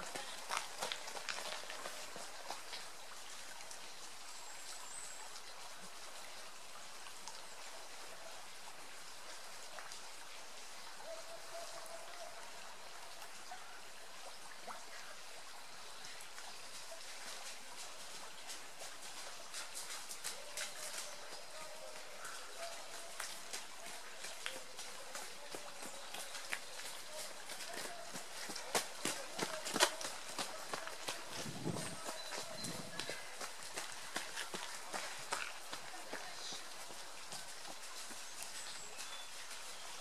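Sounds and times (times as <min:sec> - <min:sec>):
runners' footsteps: 0:00.0 - 0:03.0, 0:16.3 - 0:40.0
faint outdoor hiss: 0:00.0 - 0:40.0.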